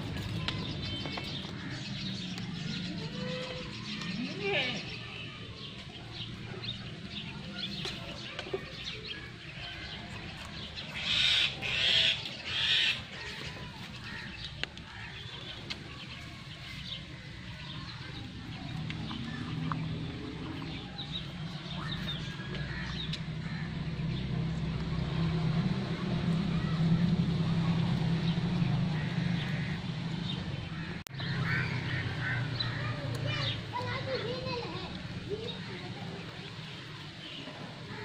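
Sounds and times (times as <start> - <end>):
harsh poultry calls: 10.9 - 14.4.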